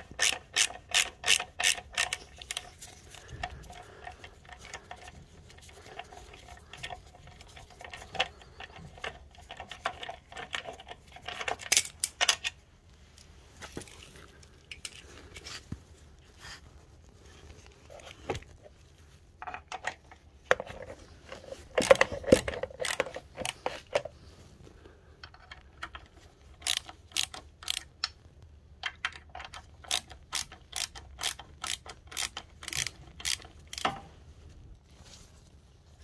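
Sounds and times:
ratchet clicks: 0.0s - 3.2s, 21.8s - 23.6s, 26.6s - 28.2s, 28.9s - 34.0s.

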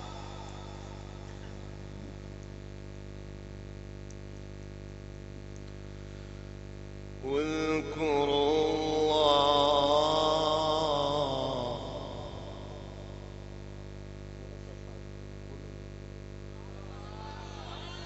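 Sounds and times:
man reciting melodically: 0.0s - 2.0s, 7.2s - 13.8s, 17.0s - 18.0s
electrical mains hum: 0.0s - 18.0s.

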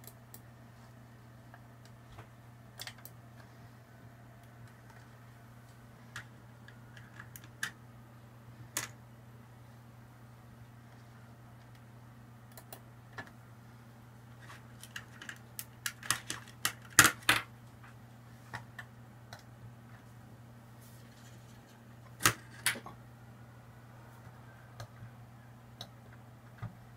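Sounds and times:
steady low hum: 0.0s - 26.9s.

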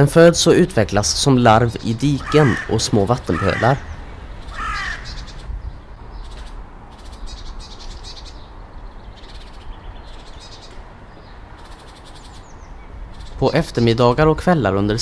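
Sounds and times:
rapid high bird chirping: 1.0s - 14.6s
bird call falling in pitch: 2.2s - 5.3s.

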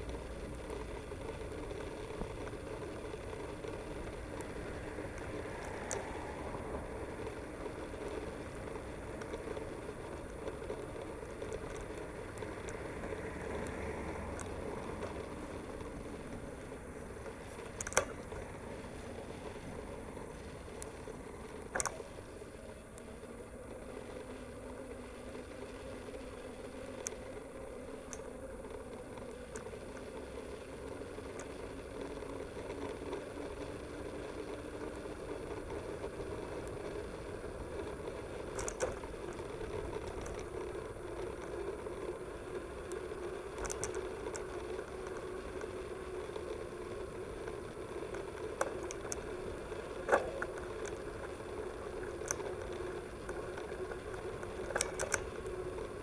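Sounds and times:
bike tyres rolling on bricks: 0.0s - 56.0s.

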